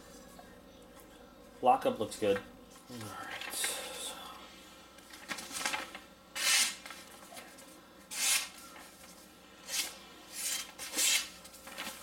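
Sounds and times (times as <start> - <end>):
knife slicing paper: 6.4 - 6.8, 8.1 - 8.6, 9.6 - 12.0.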